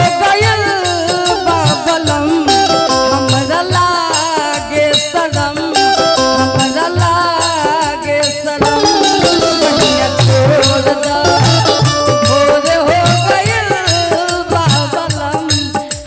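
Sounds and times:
sharp percussion strokes: 0.0s - 16.0s
wavering folk melody: 8.6s - 13.4s
low drum beat: 8.6s - 16.0s.

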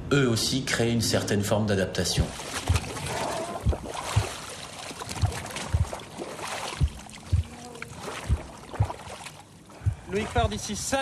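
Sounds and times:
water sloshing against a boat: 2.0s - 11.0s
low knocks: 2.2s - 4.4s, 5.1s - 6.1s, 6.7s - 7.6s, 8.2s - 9.1s, 9.8s - 10.6s.

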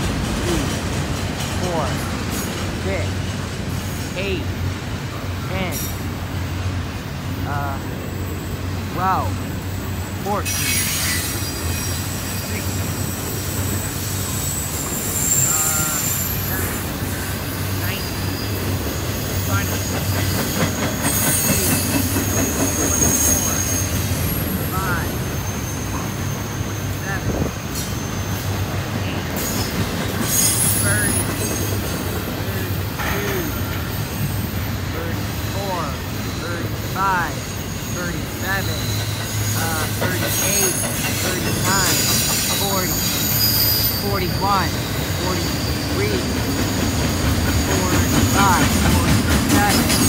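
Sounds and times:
steel wheels rumbling on rails: 0.0s - 50.0s
high-pitched wheel squeal: 10.5s - 18.6s, 20.2s - 31.8s, 37.2s - 46.3s.

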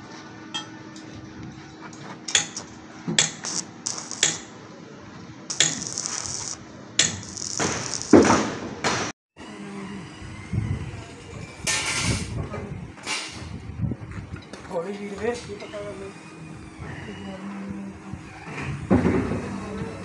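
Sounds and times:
hissing noise: 3.4s - 4.5s, 5.5s - 8.3s.

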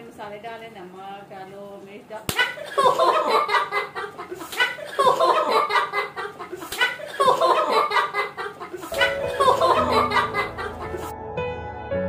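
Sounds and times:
children giggling: 2.3s - 11.1s.

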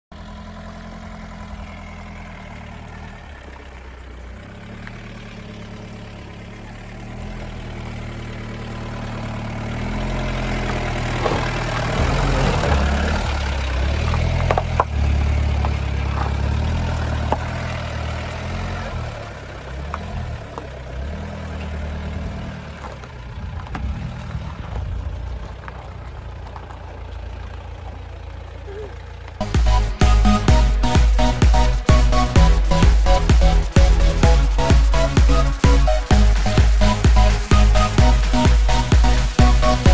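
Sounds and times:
diesel engine droning: 0.0s - 39.9s
tyres crunching over gravel: 0.2s - 32.2s.

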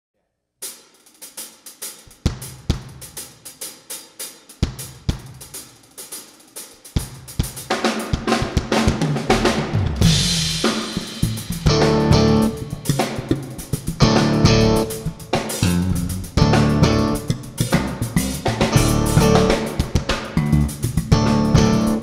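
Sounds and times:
drum kit playing: 0.6s - 22.0s
electric bass notes: 9.2s - 22.0s.

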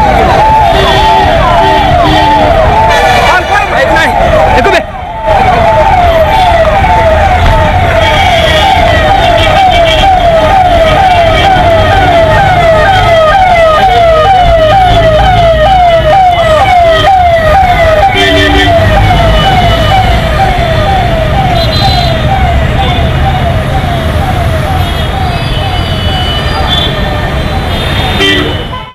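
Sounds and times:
electronic siren wailing: 0.0s - 28.9s
road noise: 0.0s - 28.9s
vehicle engines rumbling: 0.0s - 28.9s.

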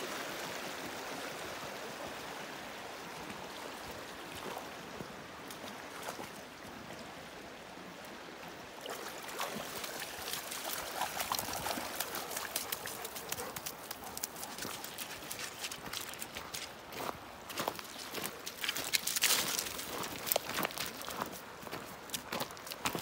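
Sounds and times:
shallow stream running: 0.0s - 23.0s
dog splashing in water: 8.9s - 16.7s.

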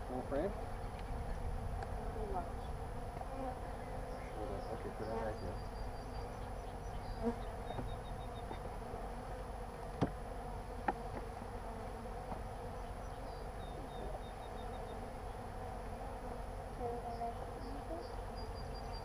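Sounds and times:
honey bees buzzing: 0.0s - 19.0s
sharp knocks: 10.0s - 10.2s.

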